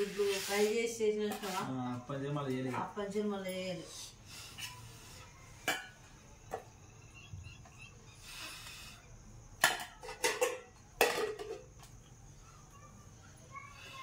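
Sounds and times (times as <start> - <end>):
spoon scraping steel bowl: 0.0 - 1.8.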